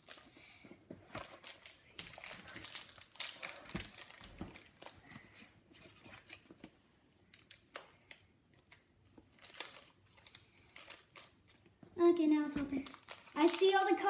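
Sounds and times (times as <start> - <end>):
foil pack crinkling: 1.2 - 5.1, 9.3 - 11.6, 12.7 - 14.0.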